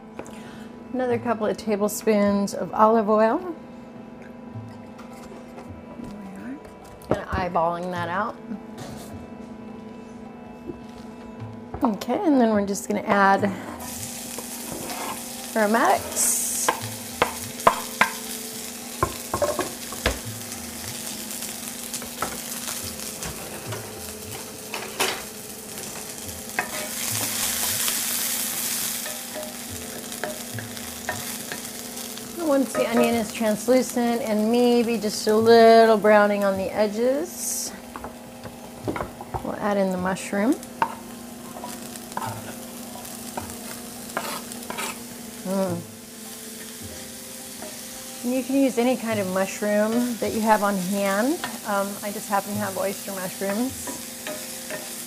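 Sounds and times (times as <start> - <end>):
onion and garlic sizzling in oil: 12.1 - 55.0
knife scraping cutting board: 14.7 - 15.2, 44.1 - 45.0.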